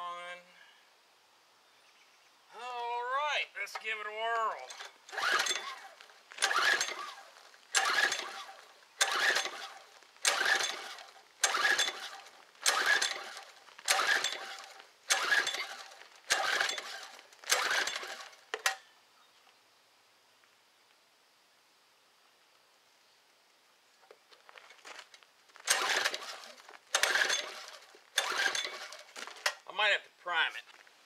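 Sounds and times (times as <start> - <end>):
recoil starter pulls: 4.5 - 18.8, 25.0 - 29.7
engine turning over: 4.6 - 18.8, 25.6 - 29.6.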